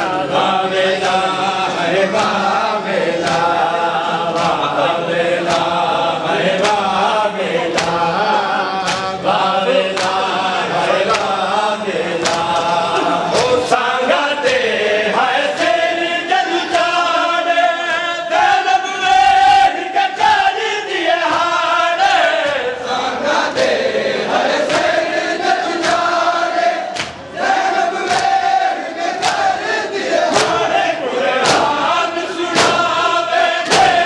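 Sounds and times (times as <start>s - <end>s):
men chanting in unison: 0.0s - 34.0s
hands slapping chests: 2.1s - 2.5s, 3.2s - 4.8s, 5.4s - 9.3s, 9.9s - 11.5s, 12.2s - 13.8s, 14.4s - 14.8s, 23.4s - 34.0s.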